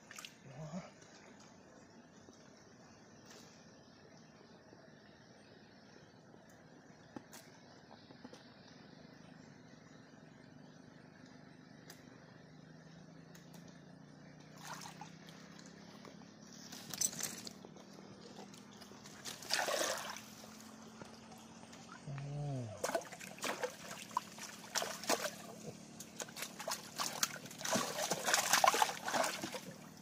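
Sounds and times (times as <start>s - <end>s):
water sloshing and splashing: 14.5s - 15.7s, 18.2s - 22.1s, 22.7s - 30.0s.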